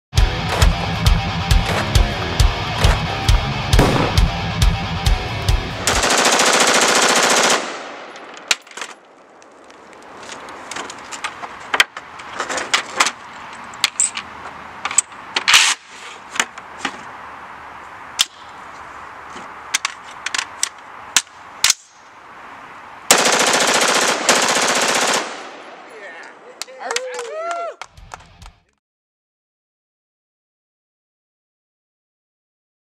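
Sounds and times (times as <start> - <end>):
rifle firing full-auto bursts: 3.8 - 4.4, 5.9 - 8.1, 23.1 - 25.6.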